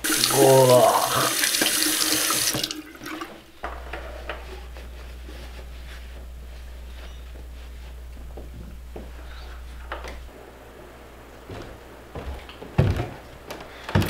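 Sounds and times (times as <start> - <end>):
faucet running into sink: 0.0 - 3.3
hands rustling on cloth towel: 3.7 - 10.3.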